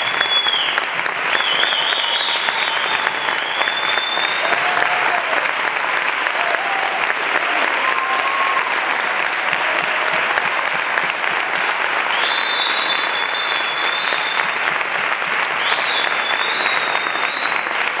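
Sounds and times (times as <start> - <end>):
long high whistles: 0.0 - 4.6, 12.1 - 14.6, 15.6 - 17.9
audience applauding: 0.0 - 18.0.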